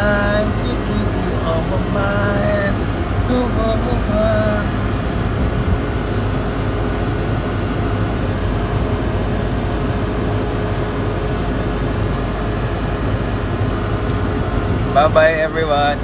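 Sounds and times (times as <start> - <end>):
constant rushing noise: 0.0 - 16.0
ship engine drone: 0.0 - 16.0.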